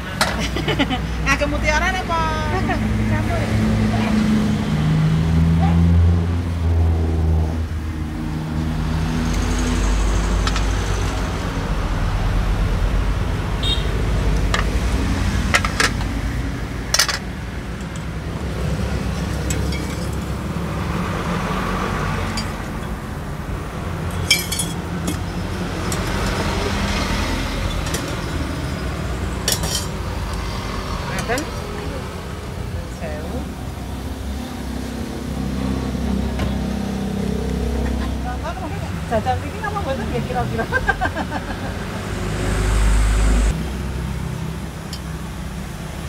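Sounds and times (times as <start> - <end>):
low rumble of traffic: 0.0 - 46.0
utensils clinking on glass and metal: 16.9 - 18.2, 19.1 - 20.3, 22.3 - 23.0, 24.0 - 28.4, 29.4 - 30.4.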